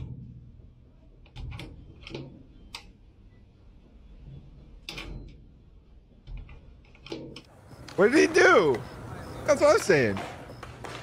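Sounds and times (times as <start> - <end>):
metal door latch clicking: 4.8 - 5.4.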